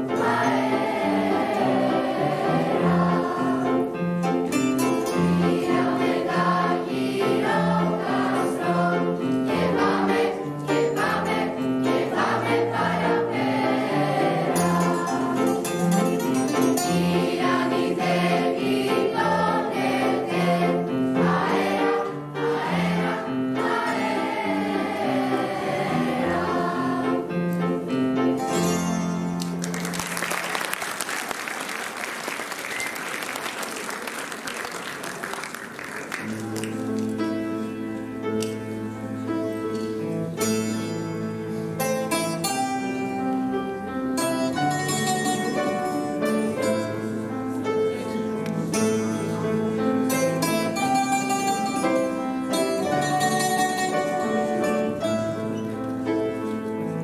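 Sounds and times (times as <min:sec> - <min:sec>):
plucked lutes guitars and piano: 0:00.0 - 0:22.6, 0:23.4 - 0:30.0, 0:36.2 - 0:57.0
choir singing: 0:00.0 - 0:27.5
audience applause: 0:29.4 - 0:37.1.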